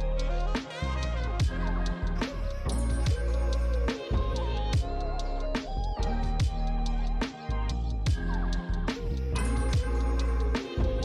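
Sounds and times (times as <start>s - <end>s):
electronic music with deep bass: 0.0s - 11.0s
steady kick drum: 1.4s - 1.8s, 2.8s - 3.5s, 4.1s - 5.1s, 6.1s - 6.9s, 8.0s - 10.2s.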